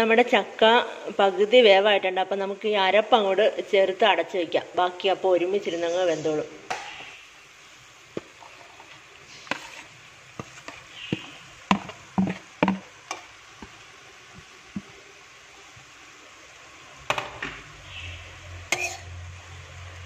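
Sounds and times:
spoon and plate knocking on steel pan: 0:11.7 - 0:12.8.

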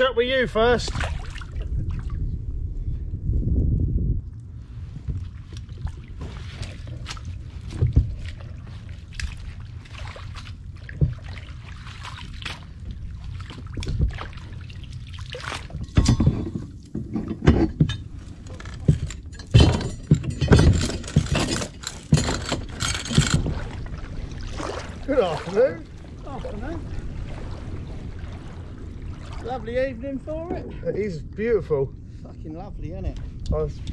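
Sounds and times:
water splashing against kayak: 0:00.8 - 0:02.3, 0:04.7 - 0:16.0, 0:21.0 - 0:30.6.

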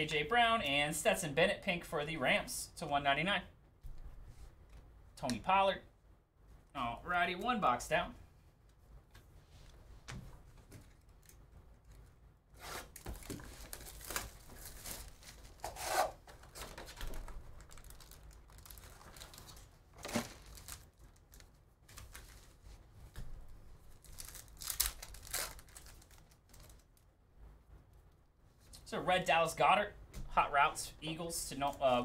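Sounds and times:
packaging tearing and crinkling: 0:12.9 - 0:22.5, 0:24.0 - 0:27.0.

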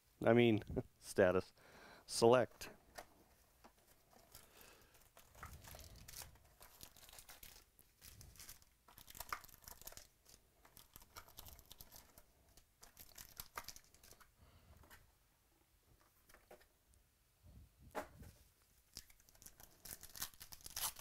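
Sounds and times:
foil packs crinkling: 0:03.8 - 0:14.3, 0:19.0 - 0:21.0.

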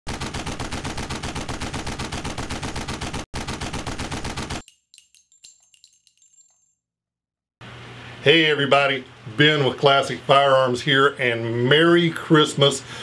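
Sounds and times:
automatic gunfire: 0:00.1 - 0:04.6
light metallic clinks: 0:04.6 - 0:06.8.

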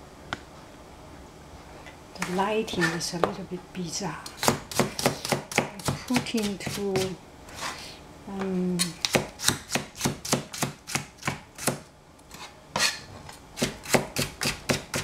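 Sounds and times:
cleaver chopping on cutting board: 0:13.6 - 0:15.0.

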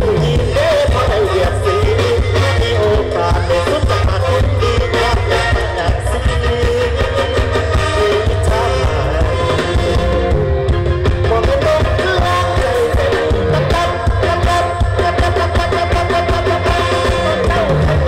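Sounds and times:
heavy bass: 0:00.0 - 0:18.0
live band through loudspeakers: 0:00.0 - 0:18.0
man singing: 0:00.0 - 0:18.0
steady drum beat: 0:00.0 - 0:18.0.

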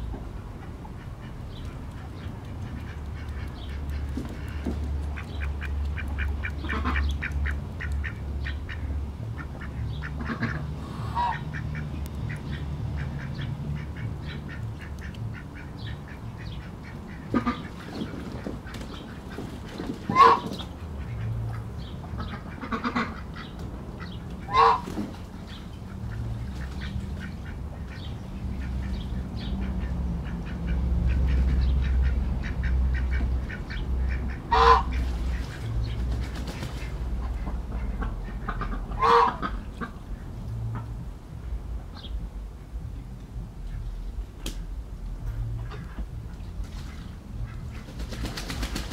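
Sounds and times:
low drone of city noise: 0:00.0 - 0:48.9
ducks quacking: 0:00.5 - 0:41.0, 0:45.3 - 0:48.9
goose honks: 0:10.1 - 0:11.6, 0:20.0 - 0:20.5, 0:24.5 - 0:24.9, 0:31.1 - 0:35.0, 0:38.0 - 0:39.9.

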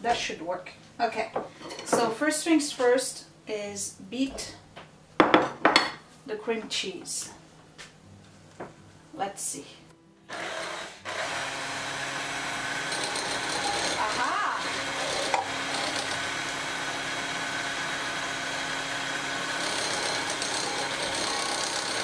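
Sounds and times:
stand mixer running: 0:10.3 - 0:22.0.

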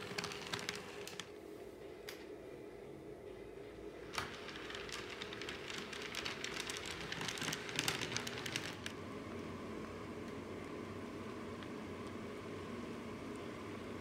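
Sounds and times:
quiet steady hum: 0:00.0 - 0:14.0
model train wheels clicking: 0:04.1 - 0:08.9.

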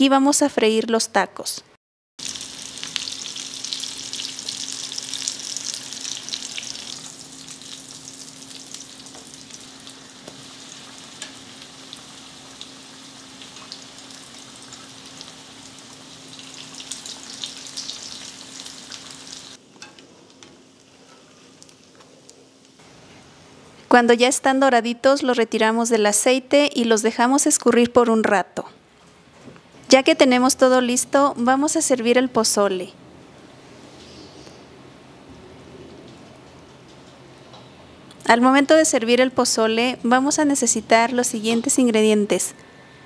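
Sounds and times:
food deep-frying in oil: 0:02.2 - 0:22.8.

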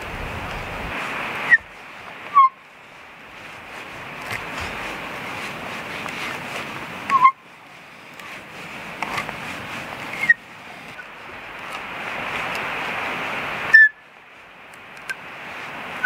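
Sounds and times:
auger squeak: 0:02.3 - 0:02.6, 0:07.1 - 0:07.4, 0:10.1 - 0:11.1, 0:13.7 - 0:13.9
hand auger grinding into log: 0:03.3 - 0:12.7.

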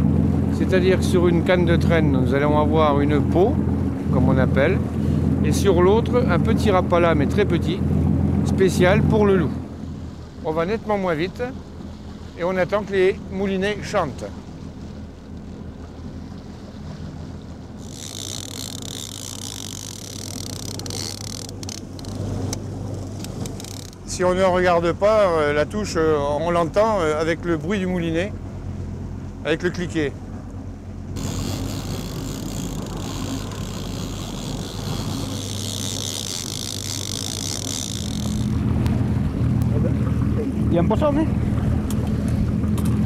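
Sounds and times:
boat engine humming: 0:00.0 - 0:43.0
fishing reel clicker buzzing: 0:17.8 - 0:24.1, 0:31.2 - 0:38.6.

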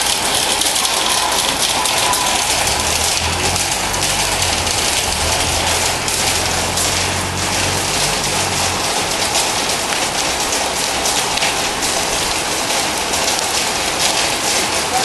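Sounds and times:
rain on a metal roof: 0:00.0 - 0:15.0
low hum: 0:01.5 - 0:09.7.

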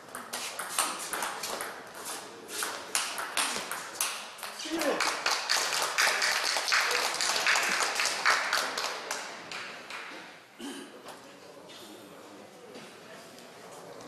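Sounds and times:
small audience clapping: 0:03.0 - 0:10.3.

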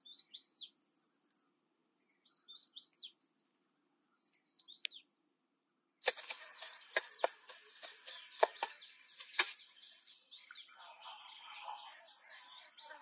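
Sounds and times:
small birds chirping: 0:00.0 - 0:13.0
high insect drone: 0:06.1 - 0:13.0.

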